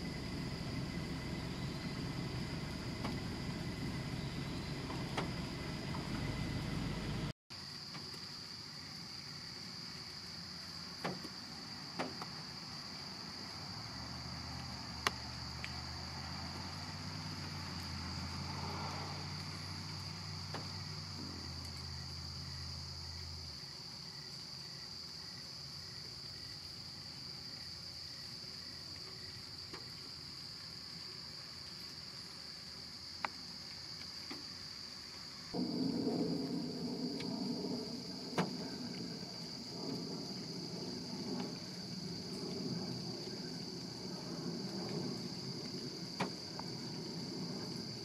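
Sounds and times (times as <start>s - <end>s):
low hum: 0.0s - 7.3s, 35.6s - 48.0s
insect chorus trilling: 0.0s - 48.0s
faint ticks: 14.5s - 15.8s, 28.9s - 30.0s.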